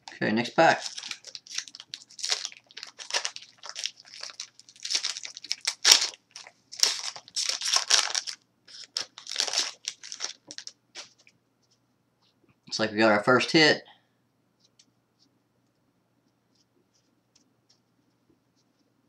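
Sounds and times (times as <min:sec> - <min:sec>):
foil wrapper tearing and crinkling: 0:00.7 - 0:11.1.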